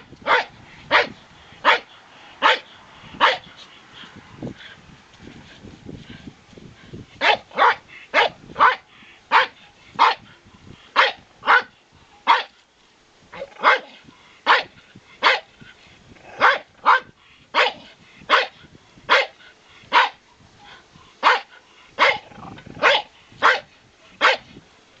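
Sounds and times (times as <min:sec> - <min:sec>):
small dogs yapping: 0:13.4 - 0:15.4, 0:21.2 - 0:24.4.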